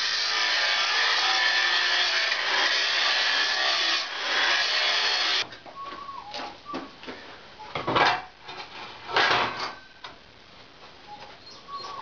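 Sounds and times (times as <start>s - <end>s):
angle grinder grinding steel: 0.0s - 5.4s.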